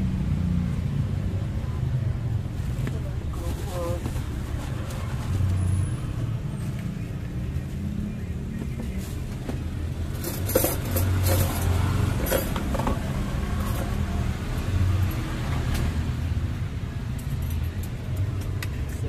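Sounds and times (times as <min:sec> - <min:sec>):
plates and utensils clinking: 0:10.2 - 0:14.0.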